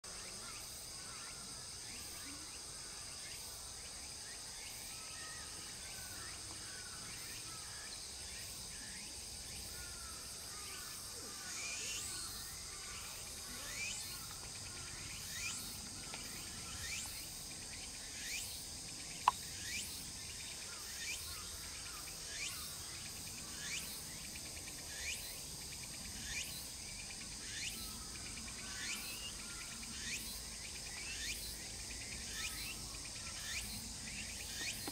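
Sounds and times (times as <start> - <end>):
insects trilling: 0.1 - 34.9.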